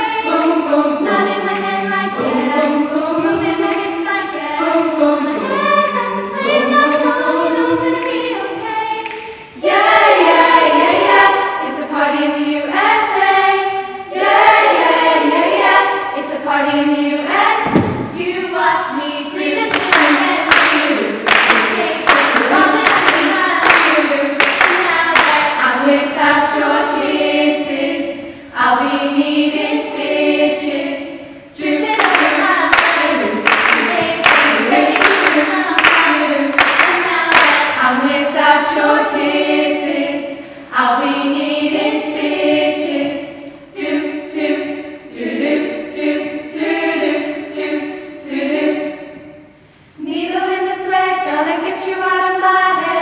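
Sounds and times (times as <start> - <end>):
rhythmic hand claps: 0.0 - 12.0, 17.3 - 48.8
girls' choir singing: 0.0 - 53.0
low thump: 17.6 - 18.2.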